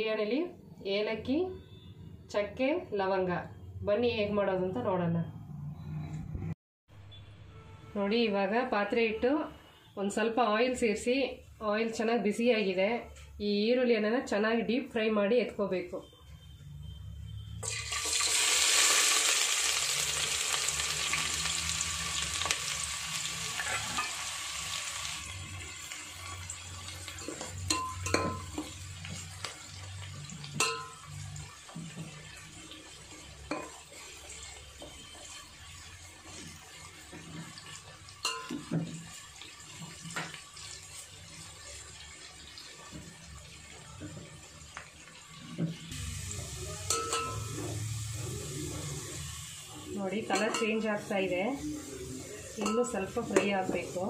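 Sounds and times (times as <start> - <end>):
onions sizzling in hot oil: 17.6 - 54.0
metal skimmer clinking against pot: 30.6 - 31.1, 38.2 - 38.7, 46.9 - 47.6, 50.3 - 50.8.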